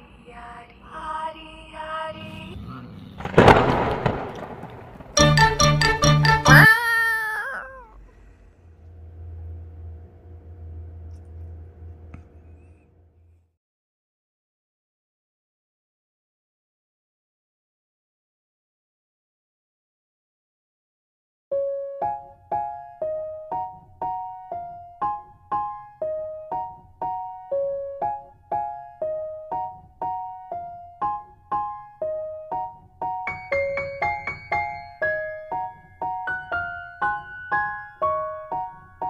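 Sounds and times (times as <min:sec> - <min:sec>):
light melody of struck notes: 0:05.2 - 0:06.7.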